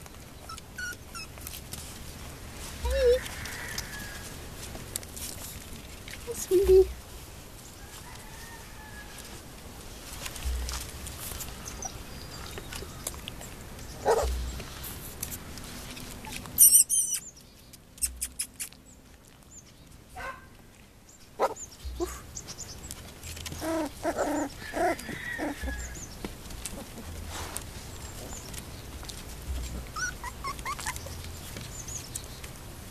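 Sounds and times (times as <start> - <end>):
puppies whining and whimpering: 0.3 - 1.6, 2.8 - 3.3, 14.0 - 14.6, 16.1 - 17.2, 21.4 - 22.4, 23.2 - 32.1
brief high-pitched chirp: 16.6 - 17.3.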